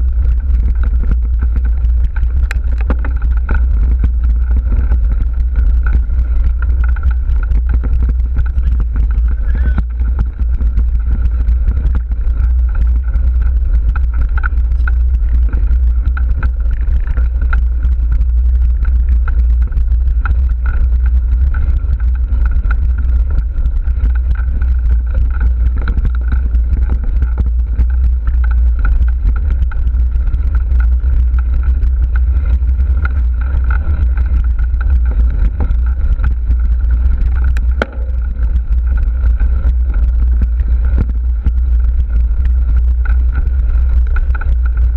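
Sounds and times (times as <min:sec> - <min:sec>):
bike rattling on rough trail: 0:00.0 - 0:44.9
steady higher hum: 0:00.0 - 0:44.9
wind rumbling on microphone: 0:00.0 - 0:44.9.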